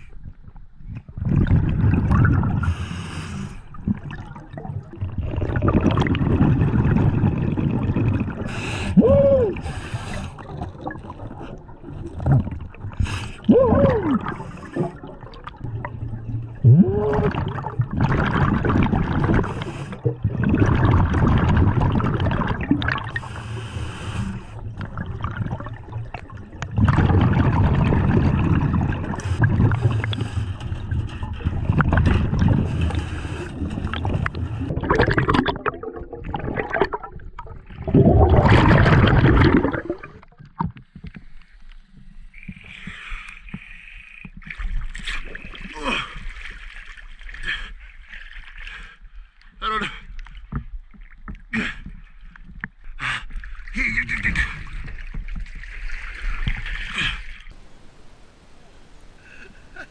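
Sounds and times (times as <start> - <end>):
regulator exhaled bubbles gurgling: 0.0 - 40.9
underwater water noise: 0.0 - 59.9.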